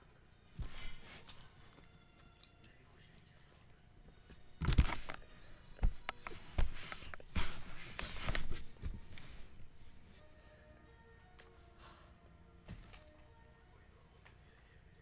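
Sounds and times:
rubbing and rustling: 4.6 - 10.2
device handling knocks and bumps: 5.8 - 7.2.

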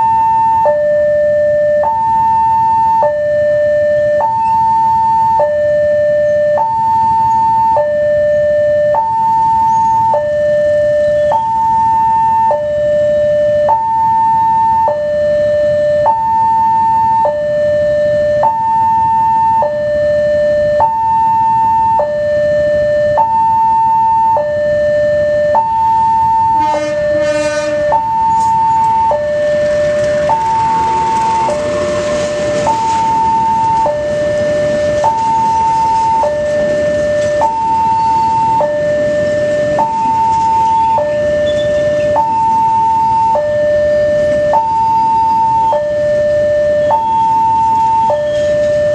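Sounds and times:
two-tone level crossing alarm: 0.0 - 48.9
passing train rushing: 26.5 - 48.9
train horn: 26.6 - 28.0.

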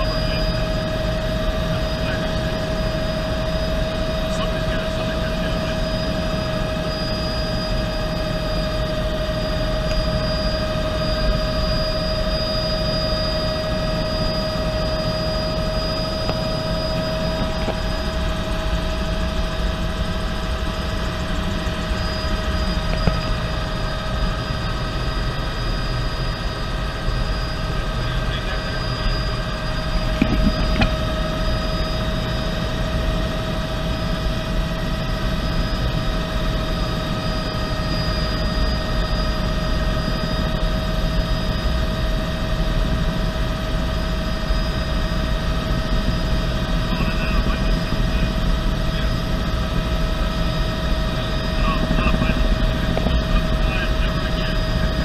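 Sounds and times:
helicopter engine whine: 0.0 - 55.0
rotor and airflow rumble: 0.0 - 55.0.

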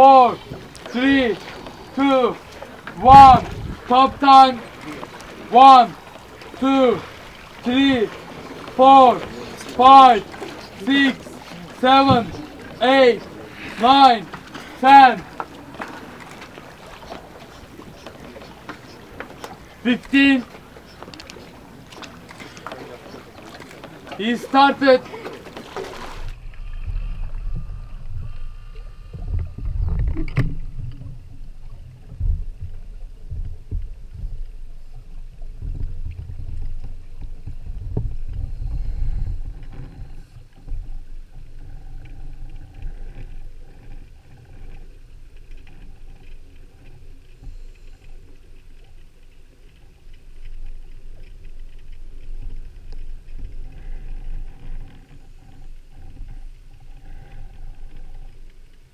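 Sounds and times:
sea water rumbling: 0.0 - 58.9.

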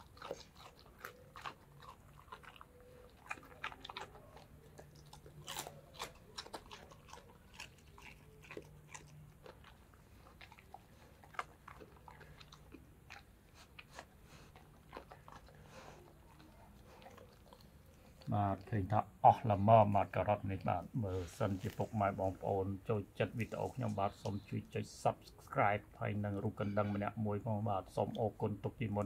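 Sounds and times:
dog crunching carrot: 0.0 - 19.7.

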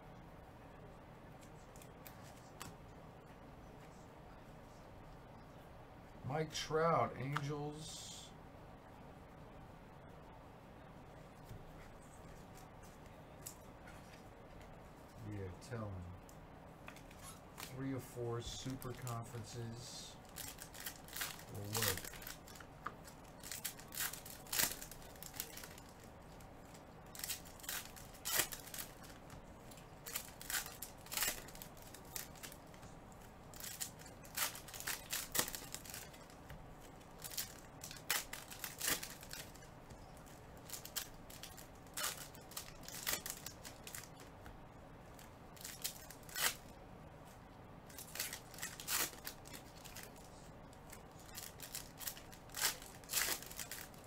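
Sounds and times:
foil wrappers crinkling and tearing: 18.5 - 44.3, 45.1 - 46.8, 47.9 - 54.0.

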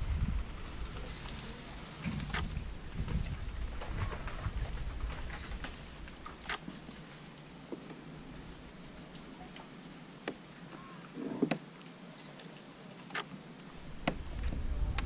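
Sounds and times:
low rumble: 0.0 - 6.5, 13.8 - 15.0.

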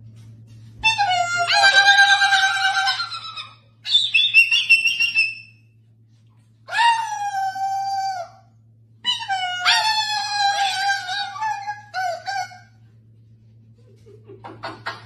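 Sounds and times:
cockatoo howl-like calls: 0.8 - 5.6, 6.7 - 12.8.

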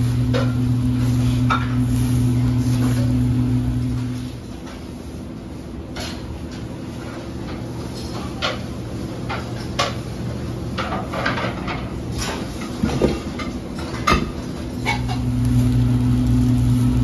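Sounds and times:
utensils and dishes clinking: 0.0 - 3.3, 5.8 - 15.4
low hum of kitchen equipment: 0.0 - 17.0.

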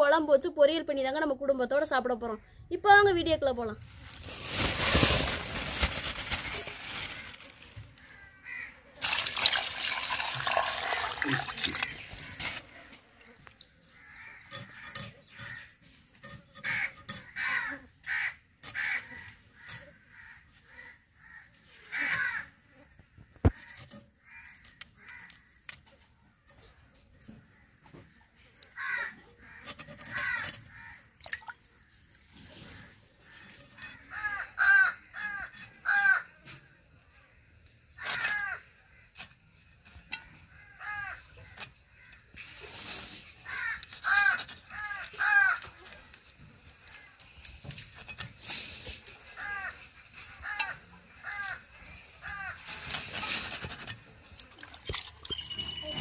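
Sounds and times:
crows cawing: 6.0 - 8.9, 13.8 - 15.8, 16.6 - 25.7, 28.7 - 32.0, 32.7 - 36.4, 37.9 - 39.2, 40.4 - 42.3, 43.4 - 45.8, 49.3 - 52.8.

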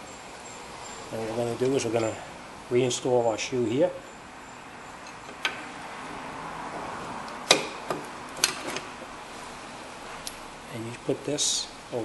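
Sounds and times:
sharp metal clicks and knocks: 7.3 - 8.9.

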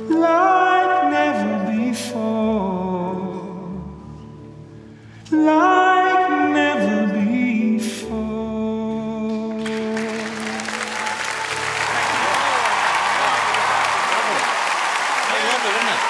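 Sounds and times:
person singing ballad: 0.0 - 11.7
soft backing music: 0.0 - 14.2
applause and cheering: 9.6 - 16.0.

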